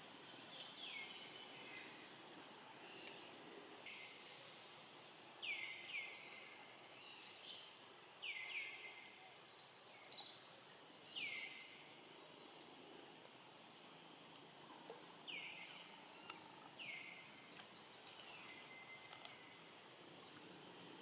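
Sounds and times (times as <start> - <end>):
faint high hiss: 0.0 - 21.0.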